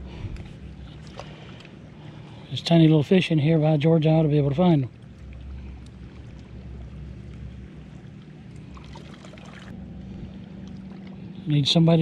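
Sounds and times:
water lapping on rocks: 0.0s - 2.5s, 4.4s - 9.8s
low rumble: 3.5s - 12.0s.

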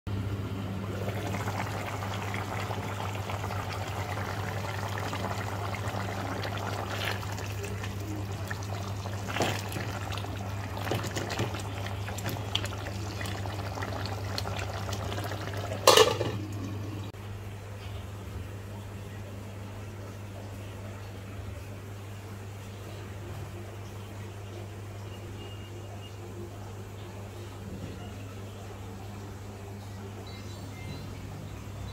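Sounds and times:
water running: 0.7s - 17.2s.

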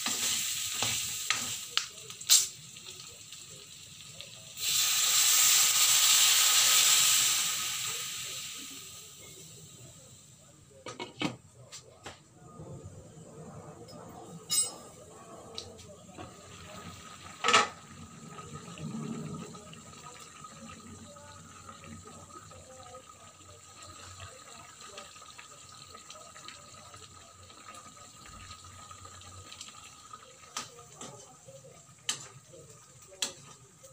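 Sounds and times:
liquid bubbling in a pan: 13.0s - 33.9s.

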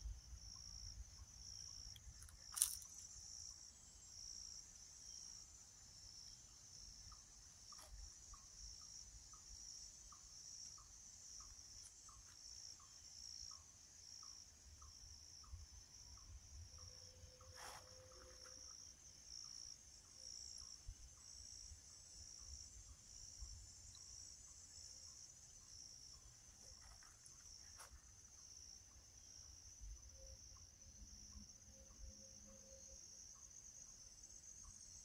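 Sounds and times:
high insect chorus: 0.0s - 35.0s.

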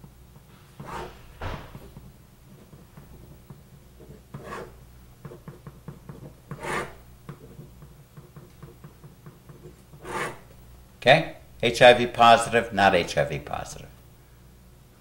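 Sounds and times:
marker scratching on paper: 0.8s - 1.2s, 4.0s - 5.5s, 6.5s - 7.0s, 10.0s - 10.4s.

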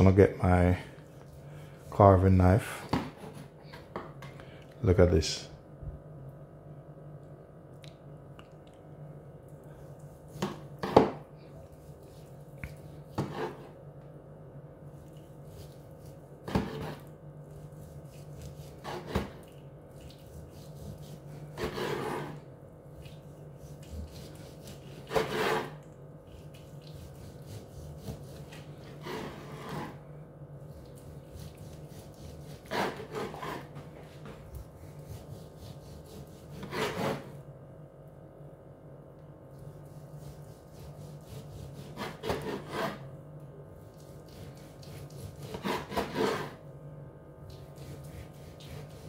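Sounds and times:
steady low hum: 0.0s - 49.0s
knife sawing through meat: 15.4s - 19.2s, 20.2s - 22.4s, 23.6s - 25.8s, 26.5s - 30.0s, 31.3s - 37.3s, 39.9s - 43.0s, 44.1s - 46.6s, 47.7s - 49.0s.

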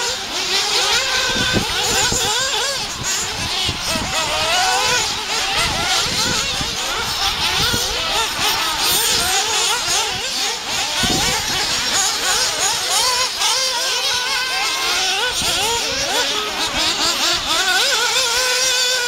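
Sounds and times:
rc car engines revving: 0.0s - 19.0s.

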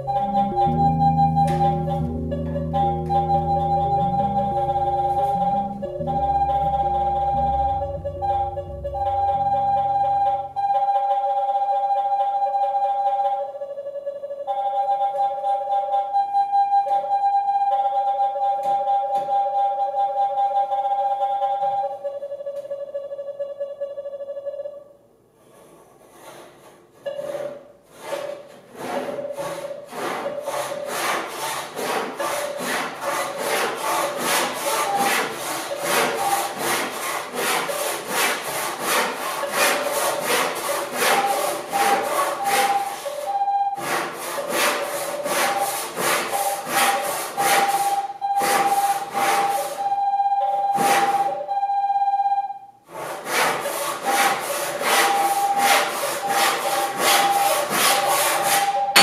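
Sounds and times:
pitched tone: 0.0s - 25.0s, 34.3s - 36.7s, 39.2s - 43.8s, 55.0s - 59.0s
hand saw cutting wood: 25.4s - 49.8s, 50.8s - 51.4s, 52.9s - 59.0s.

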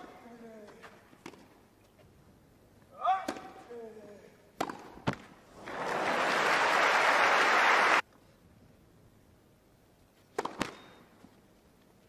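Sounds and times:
crowd applauding: 5.6s - 8.0s.

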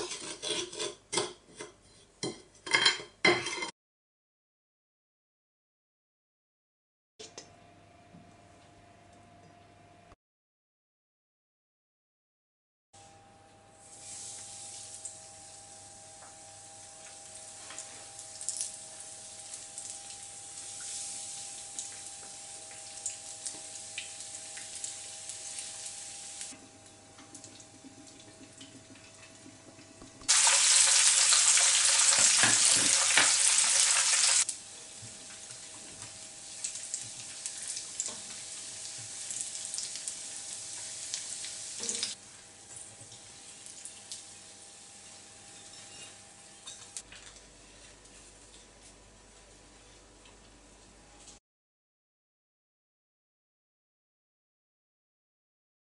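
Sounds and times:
fritters deep-frying with pops: 16.2s - 26.5s, 27.2s - 44.4s.

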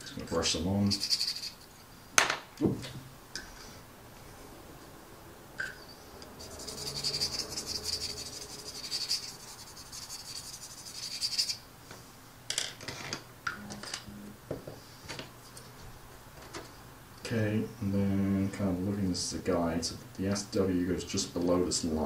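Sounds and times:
paintbrush scratching plastic: 0.9s - 1.7s, 6.3s - 11.6s.

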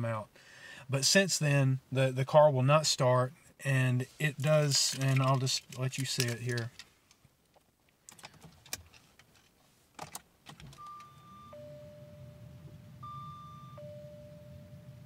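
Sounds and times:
electronic dashboard chime: 10.8s - 15.0s.

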